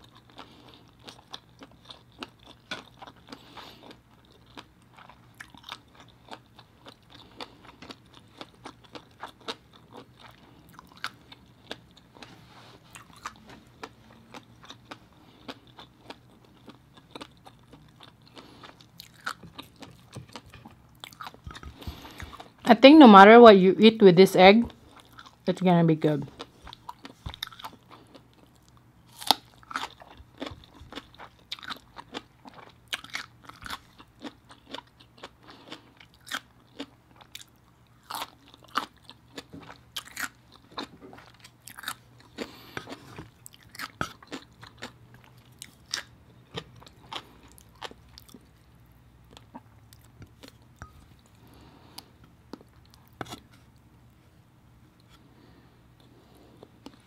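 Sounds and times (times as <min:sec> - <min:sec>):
chewing and crunching cucumber: 0:00.0 - 0:22.7, 0:24.7 - 0:25.5, 0:26.1 - 0:54.2, 0:56.0 - 0:57.0.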